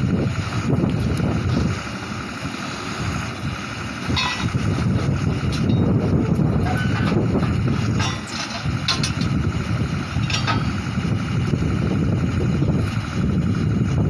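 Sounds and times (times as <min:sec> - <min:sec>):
drilling rig engine din: 0:00.0 - 0:14.0
wind buffeting microphone: 0:00.0 - 0:14.0
short metallic clinks: 0:04.1 - 0:04.6.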